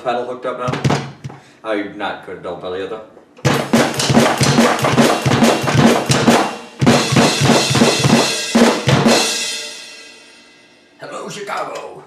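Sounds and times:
snare and tom hits: 0:00.6 - 0:01.2, 0:03.4 - 0:09.8
rapid kick drum strokes: 0:03.4 - 0:10.3
cymbal ringing: 0:06.4 - 0:11.0.

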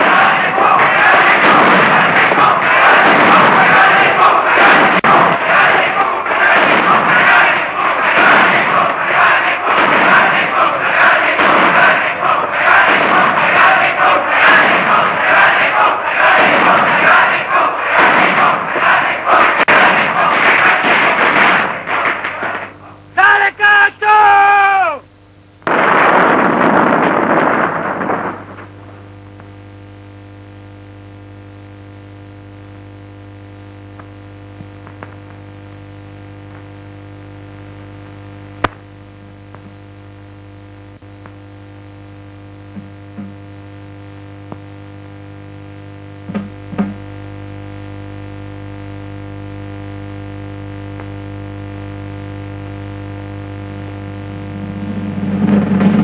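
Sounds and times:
loud rushing noise: 0:00.0 - 0:22.9, 0:54.4 - 0:56.0
low droning hum: 0:25.1 - 0:56.0.

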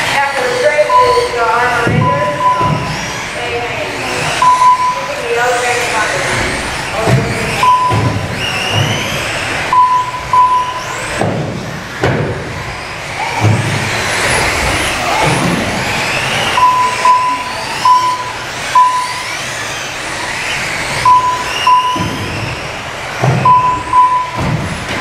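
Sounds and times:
toy car motors whining: 0:00.0 - 0:25.0
lap timer beeps: 0:00.8 - 0:02.9, 0:04.4 - 0:05.2, 0:07.6 - 0:08.2, 0:09.7 - 0:11.0, 0:16.6 - 0:19.2, 0:21.0 - 0:22.1, 0:23.4 - 0:24.5.

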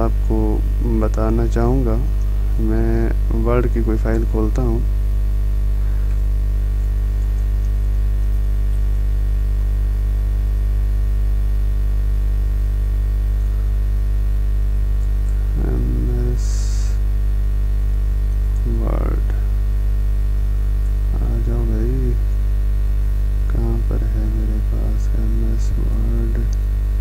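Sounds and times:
electrical mains hum: 0:00.0 - 0:27.0
murmur of voice: 0:23.5 - 0:26.5.

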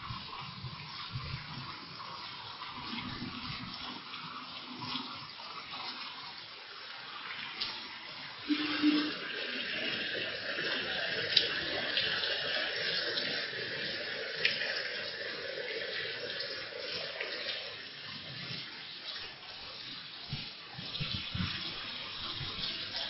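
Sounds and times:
heavy rain pouring: 0:07.1 - 0:23.0.

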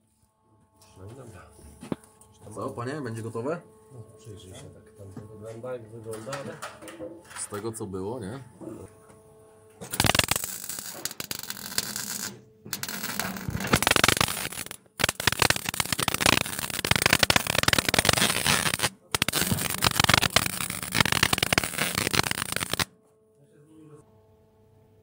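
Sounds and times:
welder crackling: 0:09.8 - 0:22.9.

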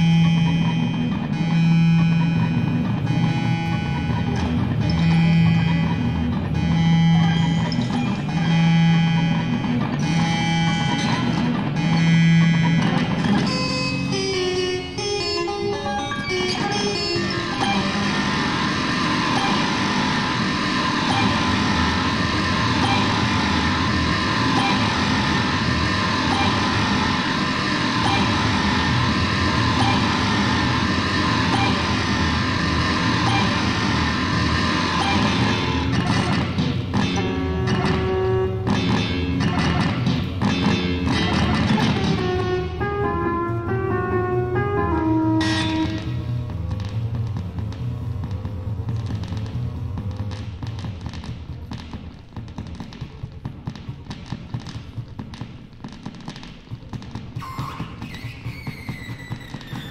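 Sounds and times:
electronic noise drone: 0:00.0 - 0:53.0, 0:56.9 - 0:59.9
low rumble: 0:18.0 - 0:51.7.

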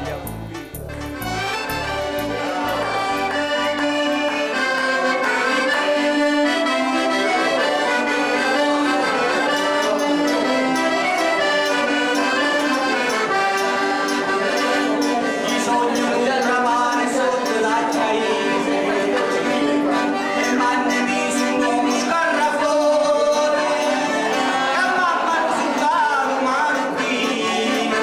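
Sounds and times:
deep bass notes: 0:00.0 - 0:04.4
accordion folk melody: 0:00.0 - 0:28.0.

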